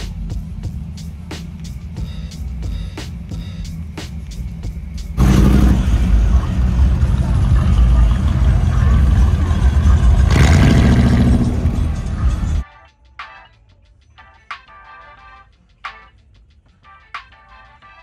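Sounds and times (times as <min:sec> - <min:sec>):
car engine rumble: 0:00.0 - 0:12.6
music with steady beat: 0:00.0 - 0:18.0.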